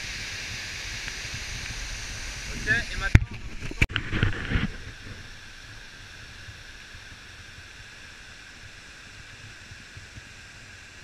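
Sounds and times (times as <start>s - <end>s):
waterfall rushing: 0.0s - 3.9s.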